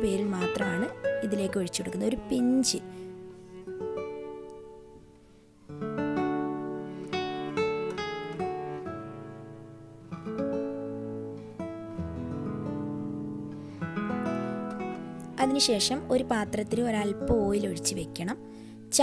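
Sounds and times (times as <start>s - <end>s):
acoustic guitar music: 0.0s - 19.0s.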